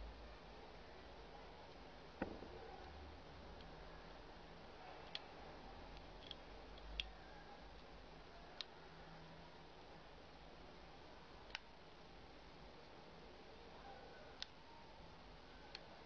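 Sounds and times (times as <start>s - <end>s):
soft knock: 2.2s - 2.7s
small plastic clicks: 5.9s - 7.9s, 11.4s - 11.7s.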